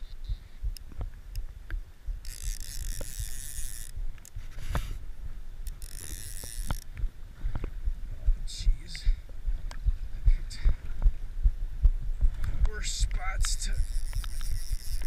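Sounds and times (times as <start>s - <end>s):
fly reel drag ratcheting: 2.2s - 5.0s, 5.6s - 6.9s, 12.9s - 15.0s.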